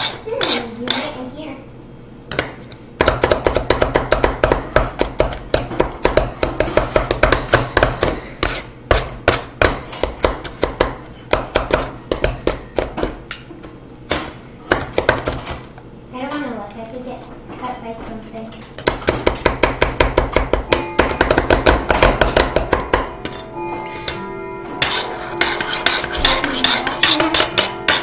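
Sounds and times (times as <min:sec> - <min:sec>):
utensils chopping on wooden board: 0:02.3 - 0:13.4, 0:14.1 - 0:15.6, 0:18.8 - 0:23.4, 0:24.8 - 0:28.0.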